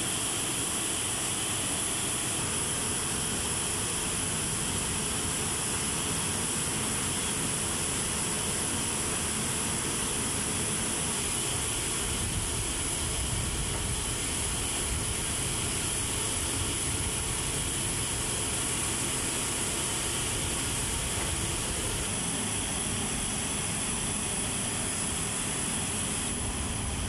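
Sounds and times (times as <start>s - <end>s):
constant rushing machinery noise: 0.0s - 27.0s.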